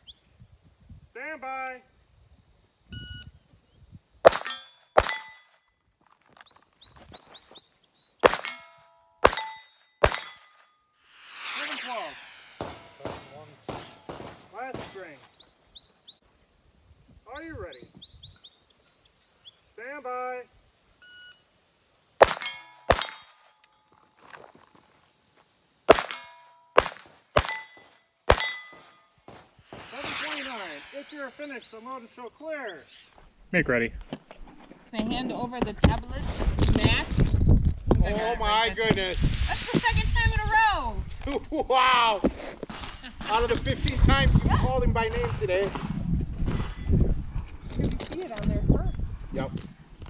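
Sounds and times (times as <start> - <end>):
pistol shots: 4.2 - 5.4, 8.2 - 10.5, 12.6 - 15.2, 22.2 - 23.3, 25.9 - 30.4
steel target ringing: 4.3 - 5.6, 8.2 - 15.0, 22.2 - 23.5, 25.9 - 26.8, 27.4 - 29.1.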